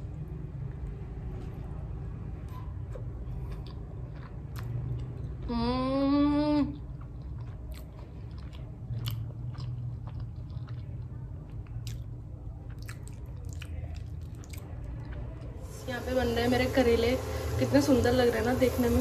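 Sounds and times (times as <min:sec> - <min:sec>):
person chewing: 0:02.4 - 0:05.7, 0:06.6 - 0:15.6.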